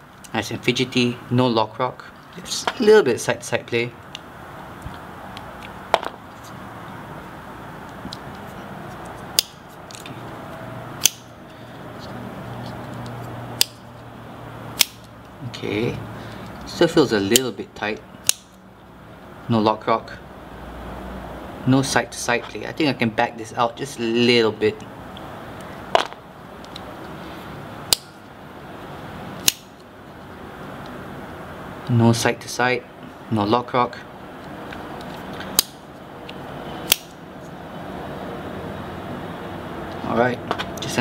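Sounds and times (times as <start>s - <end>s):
folding knife blade clicks: 11.0s - 11.3s, 13.6s - 13.8s, 14.8s - 15.1s, 36.9s - 37.2s.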